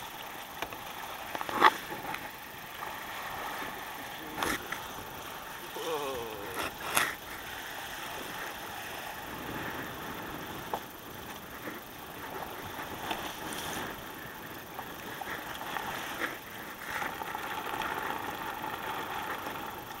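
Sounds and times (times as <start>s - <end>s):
water rushing along hull: 0.0s - 20.0s
spray slapping boat: 0.2s - 20.0s.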